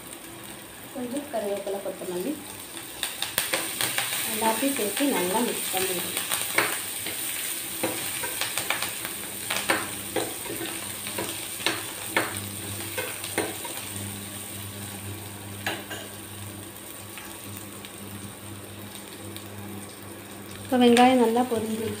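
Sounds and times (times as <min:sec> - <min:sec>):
onions sizzling in oil: 0:00.0 - 0:22.0.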